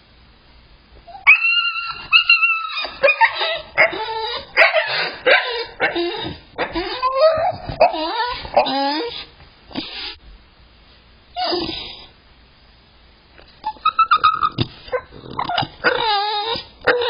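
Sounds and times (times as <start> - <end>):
puppy whining and yelping: 1.1 - 10.2, 11.4 - 12.1, 13.6 - 17.0.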